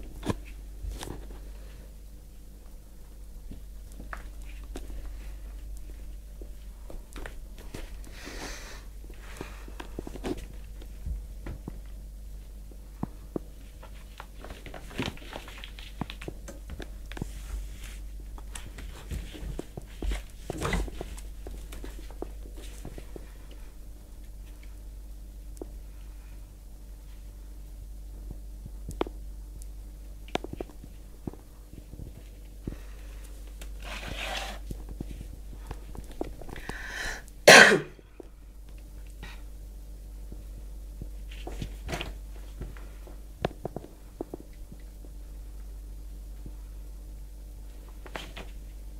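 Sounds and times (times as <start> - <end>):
person coughing: 37.4 - 38.0.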